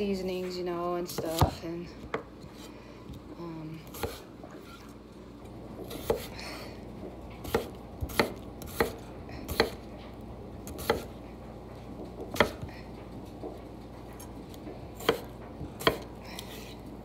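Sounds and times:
knife chopping on wooden board: 1.1 - 2.7, 3.9 - 4.8, 5.8 - 6.3, 7.4 - 9.8, 10.6 - 11.1, 12.2 - 12.7, 15.0 - 16.8.

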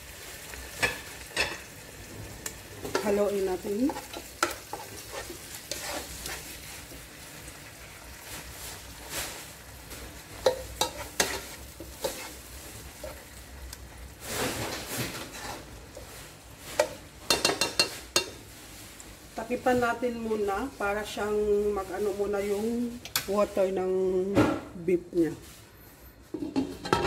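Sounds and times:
meat sizzling in a pot: 0.0 - 23.9
spatula scraping a pot: 2.4 - 7.0, 10.4 - 13.3, 14.2 - 18.4.

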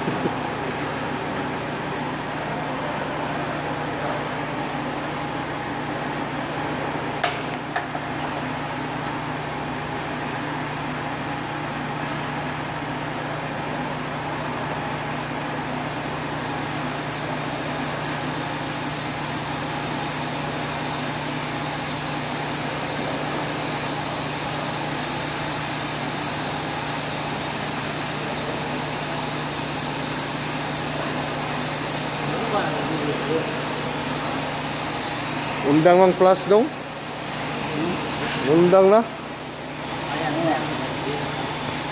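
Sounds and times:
welding arc hiss: 13.6 - 41.9.

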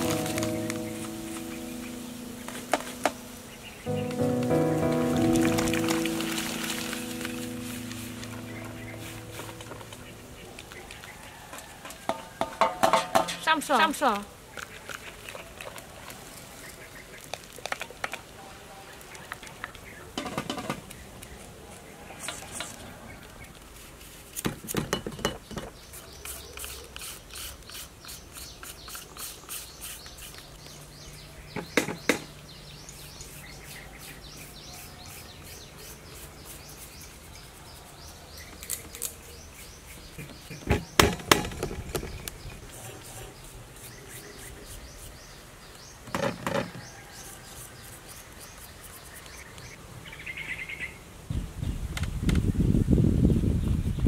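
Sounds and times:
birds chirping: 0.0 - 15.4, 28.0 - 47.4
knocks and clatters: 11.6 - 13.5.

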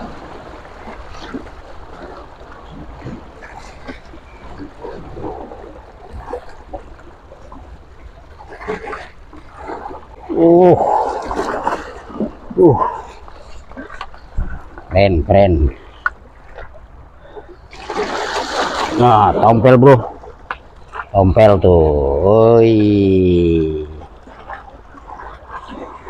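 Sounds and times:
sea splashing against rocks: 0.0 - 14.9, 17.7 - 21.2, 24.1 - 26.0
wind on microphone: 13.8 - 15.0.

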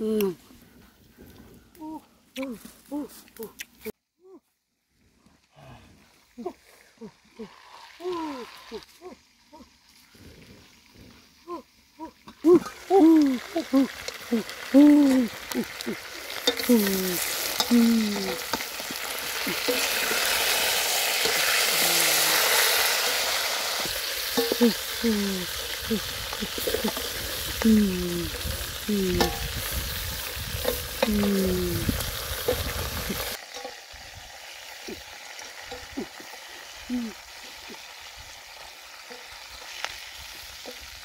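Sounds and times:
soup simmering hiss: 5.5 - 41.0
wooden spoon stirring: 24.4 - 24.7.

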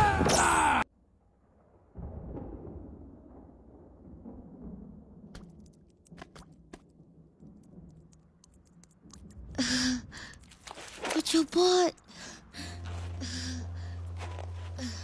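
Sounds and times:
small clicks: 7.5 - 9.6
low rumble: 12.0 - 15.0.

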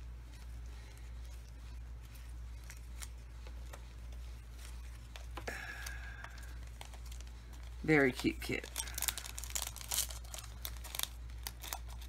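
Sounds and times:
cellophane crinkling: 0.0 - 12.0
low steady hum: 0.0 - 12.0.

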